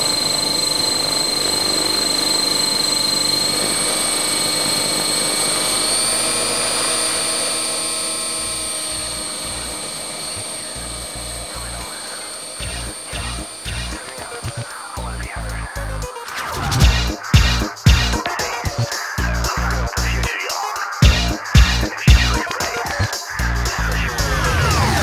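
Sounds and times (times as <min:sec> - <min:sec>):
helicopter rotor noise: 0:00.0 - 0:25.0
high-pitched motor whine: 0:00.0 - 0:25.0.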